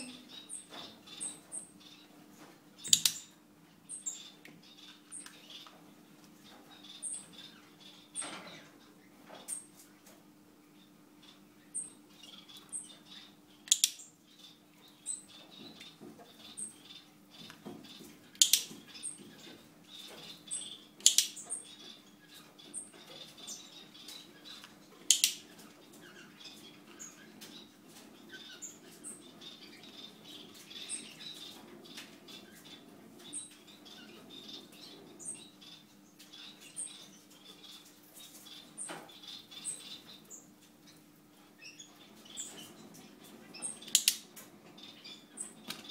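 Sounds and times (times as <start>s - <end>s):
faint steady hum: 0.0s - 45.9s
loud sharp clicks: 2.9s - 3.2s, 13.7s - 14.0s, 18.4s - 18.7s, 21.0s - 21.3s, 25.1s - 25.4s, 43.9s - 44.2s.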